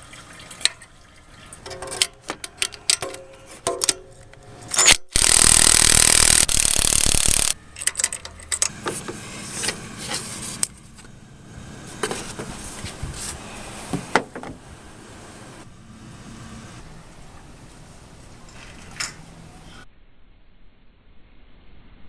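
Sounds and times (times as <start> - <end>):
cordless power tool running: 5.0 - 7.6.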